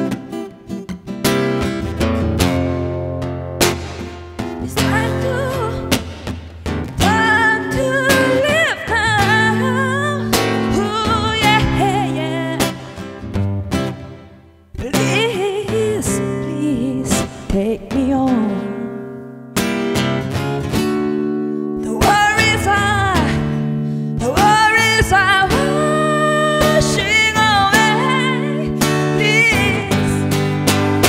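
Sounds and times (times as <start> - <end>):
ringing guitar chords: 0.0 - 31.0
person singing with vibrato: 4.6 - 6.1, 7.0 - 13.2, 14.8 - 19.2, 21.8 - 30.6.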